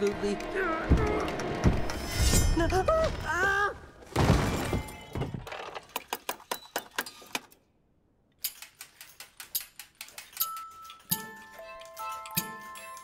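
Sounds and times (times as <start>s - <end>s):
wooden toys clicking and clacking: 5.2s - 7.6s, 8.3s - 13.0s.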